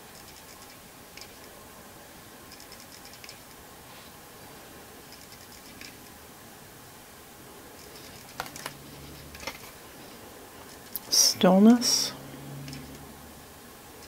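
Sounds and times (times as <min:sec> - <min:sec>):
cards clicking and tapping: 0:08.1 - 0:08.8.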